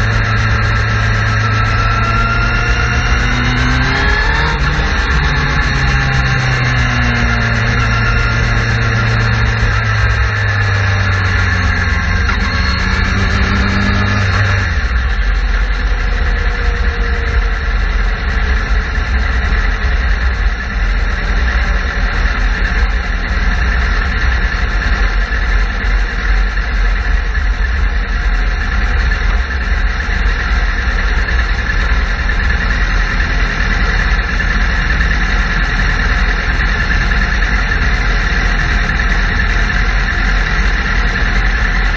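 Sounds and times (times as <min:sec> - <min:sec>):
motorcycle engine: 0:00.0 - 0:41.9.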